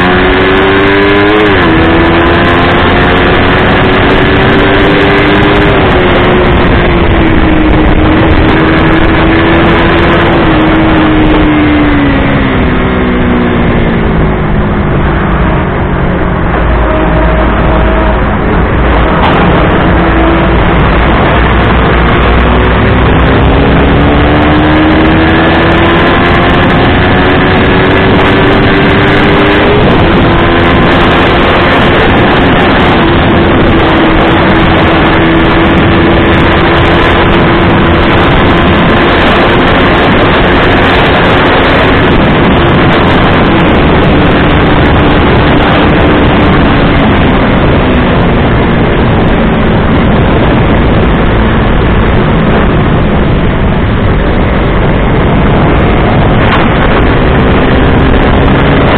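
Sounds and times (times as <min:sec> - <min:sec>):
motorcycle engine accelerating: 0:00.0 - 0:58.9
wind rush on microphone: 0:00.0 - 0:58.9.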